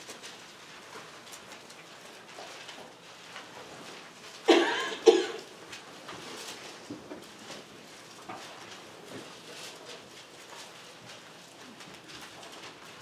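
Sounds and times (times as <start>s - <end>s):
person coughing: 4.5s - 5.5s.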